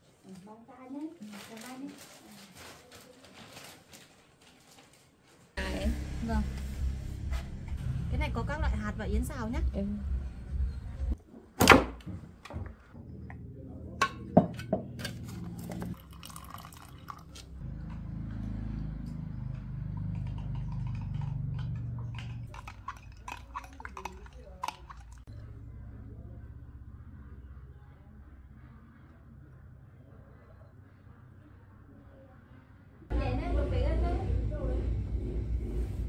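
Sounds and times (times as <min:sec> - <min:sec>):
liquid pouring: 0:15.9 - 0:17.6, 0:22.2 - 0:25.3.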